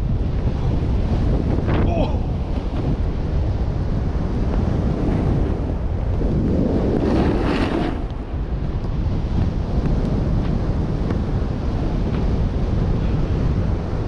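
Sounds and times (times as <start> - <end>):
snowboard sliding over snow: 0.0 - 14.0
wind buffeting microphone: 0.0 - 14.0.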